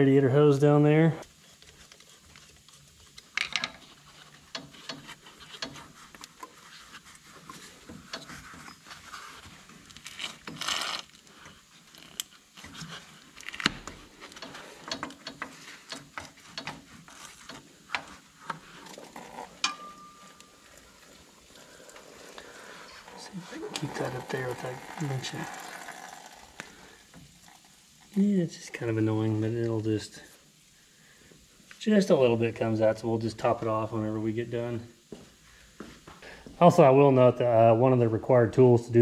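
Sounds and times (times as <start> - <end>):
rubber hose being worked off: 1.2 - 19.7, 20.8 - 28.0.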